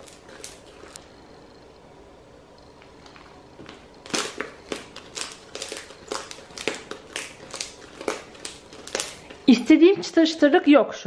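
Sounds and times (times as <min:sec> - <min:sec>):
slime squishing in hands: 0:03.1 - 0:09.7.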